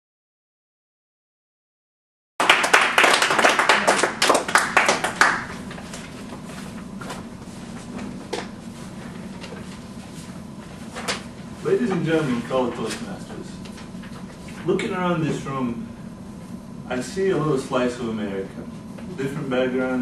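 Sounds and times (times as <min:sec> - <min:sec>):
small group clapping: 0:02.4 - 0:06.0.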